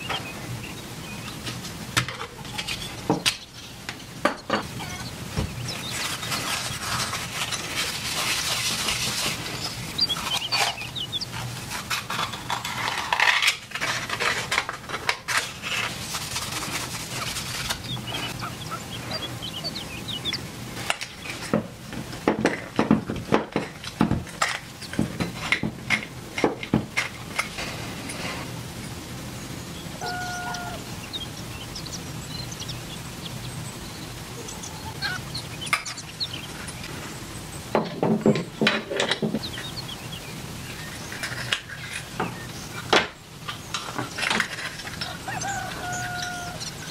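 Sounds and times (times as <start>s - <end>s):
paper towel rustling on steel cup: 5.7s - 18.4s.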